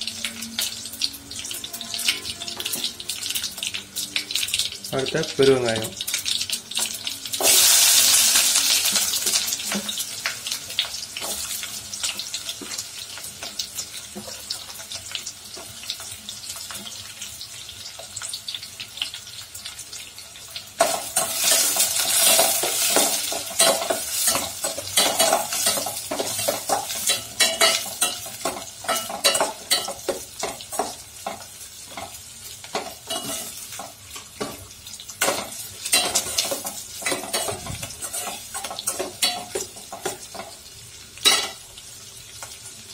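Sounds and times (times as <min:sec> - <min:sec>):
oil sizzling with onions: 0:00.0 - 0:42.9.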